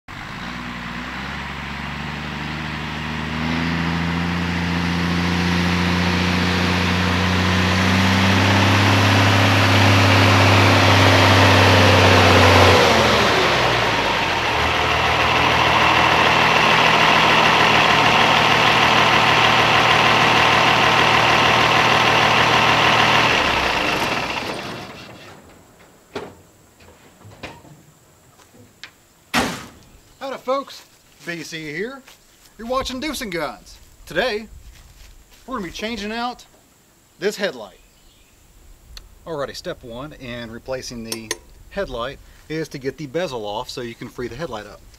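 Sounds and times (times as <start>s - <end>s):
diesel truck engine running: 0.1s - 26.8s.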